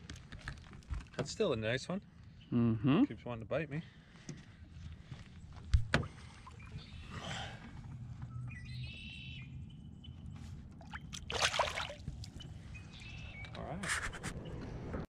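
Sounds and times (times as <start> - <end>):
fish splashing into water: 10.8 - 12.4.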